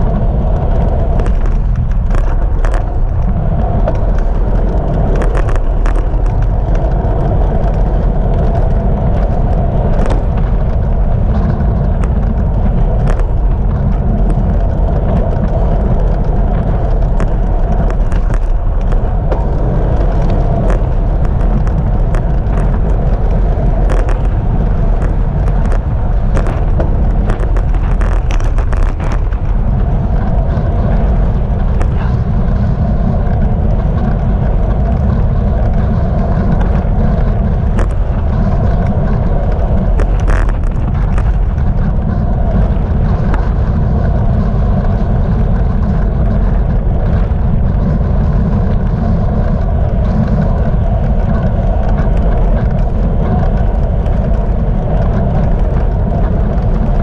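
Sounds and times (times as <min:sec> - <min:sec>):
wind rushing on microphone: 0:00.0 - 0:57.0
sharp clicks and knocks: 0:00.4 - 0:43.8.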